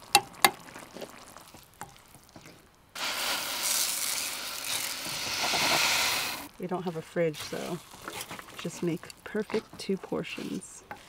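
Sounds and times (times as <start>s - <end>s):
vegetables frying in a pan: 0.0s - 6.5s
loud sizzle: 2.9s - 6.6s.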